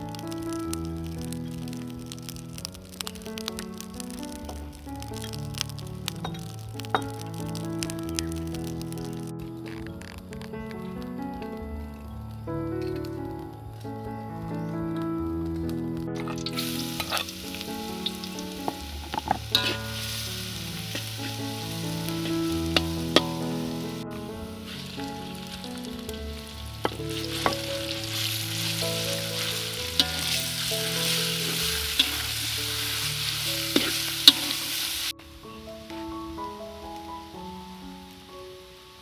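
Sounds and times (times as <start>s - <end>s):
meat sizzling in hot oil: 0.0s - 11.0s, 16.1s - 35.2s
spatula scraping metal wok: 19.1s - 21.4s, 29.4s - 35.0s.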